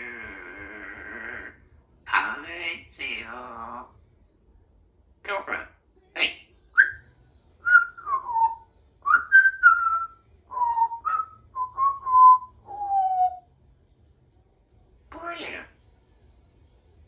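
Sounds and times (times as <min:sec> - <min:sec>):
parrot whistling: 0:06.2 - 0:07.0, 0:07.6 - 0:13.4.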